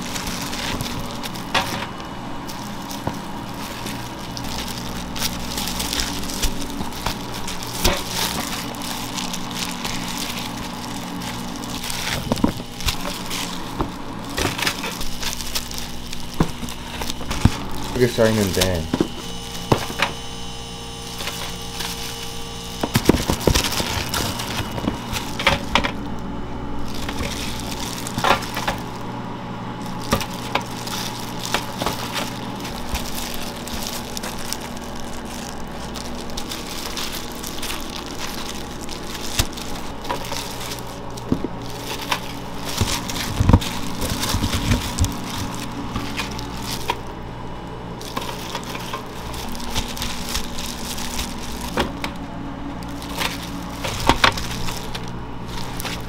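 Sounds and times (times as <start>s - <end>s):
steady machine hum: 0.0s - 56.0s.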